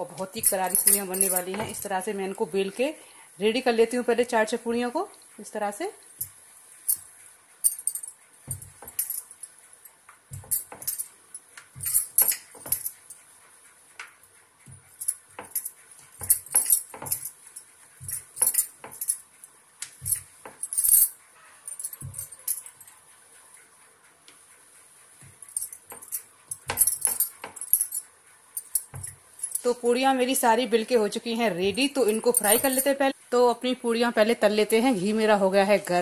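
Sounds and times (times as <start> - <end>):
glass bangles clinking: 0.1 - 1.9, 6.2 - 9.6, 10.3 - 13.2, 14.9 - 22.9, 25.4 - 29.8, 31.8 - 33.1.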